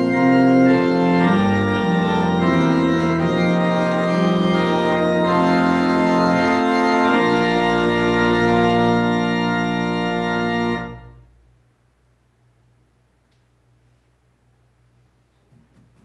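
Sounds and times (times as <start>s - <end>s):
organ playing chords: 0.0s - 11.4s.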